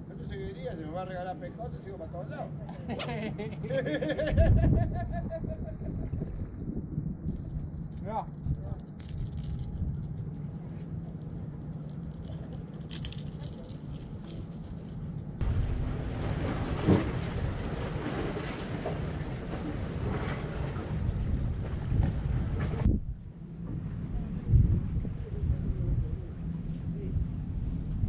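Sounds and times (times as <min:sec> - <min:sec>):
wind noise on microphone: 0:04.0 - 0:10.7, 0:19.4 - 0:28.0.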